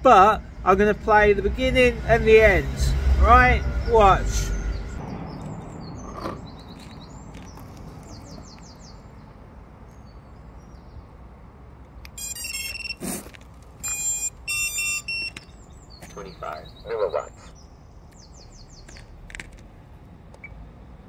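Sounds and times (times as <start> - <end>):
high electronic beep tones: 12.1 - 13.2, 13.8 - 15.6.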